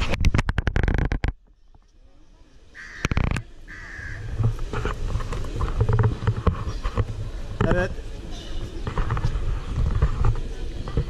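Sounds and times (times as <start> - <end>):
crow cawing: 2.8 - 4.4.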